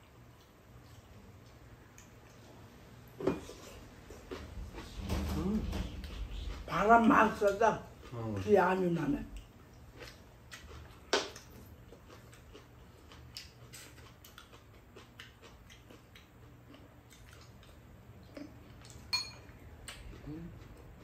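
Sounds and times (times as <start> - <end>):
low steady hum: 0.0 - 21.0
chewing: 0.1 - 2.6, 9.3 - 21.0.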